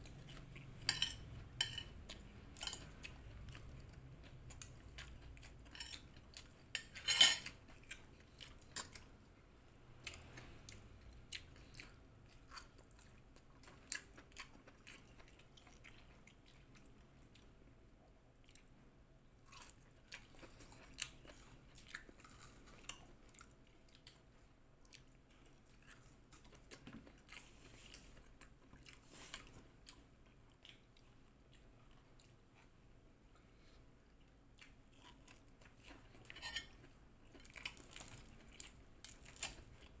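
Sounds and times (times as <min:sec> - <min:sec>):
chewing and crunching food: 0:00.0 - 0:09.4, 0:10.0 - 0:40.0
cutlery clinking on a plate: 0:00.9 - 0:02.0, 0:06.8 - 0:07.6.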